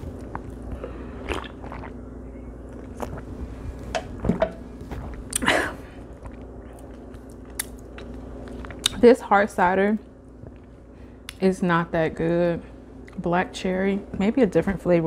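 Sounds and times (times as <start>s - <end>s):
person chewing food: 0.0s - 9.0s
steady low hum: 0.0s - 15.0s.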